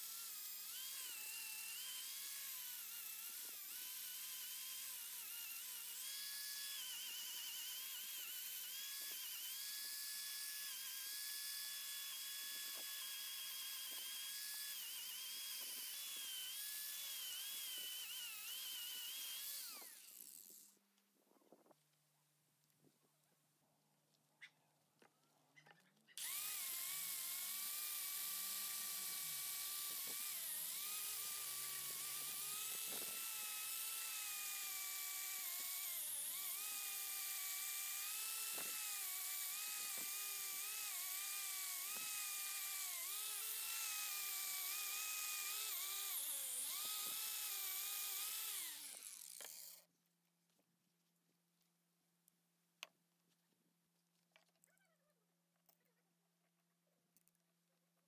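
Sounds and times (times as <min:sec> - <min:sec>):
wire brush grinder on metal: 0:00.0 - 0:20.8, 0:26.2 - 0:49.9.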